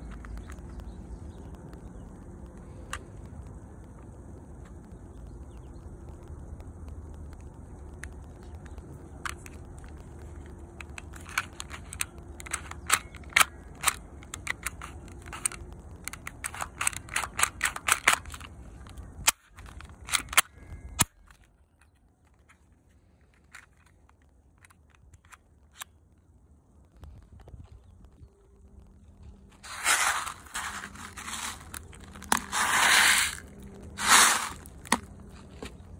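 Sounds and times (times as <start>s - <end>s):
pistol mechanism clicking: 10.8s - 21.4s.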